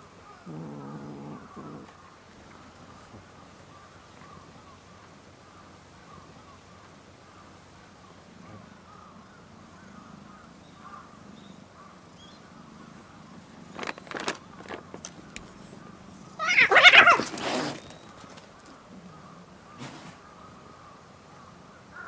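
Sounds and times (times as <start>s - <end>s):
knocks and rustles: 13.7s - 15.7s
cat screech: 16.4s - 17.8s.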